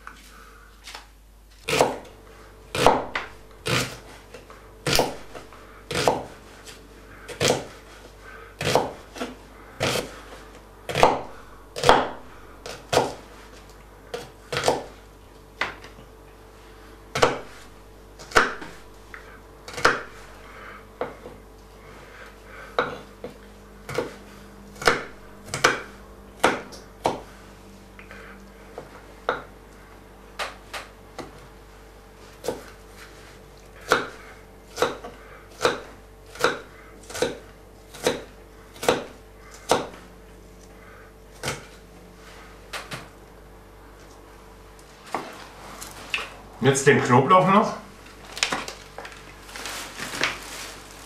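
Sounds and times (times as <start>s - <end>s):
knife slicing onion: 1.6s - 15.0s, 17.1s - 21.4s, 22.8s - 27.4s, 32.3s - 40.0s, 41.3s - 41.8s.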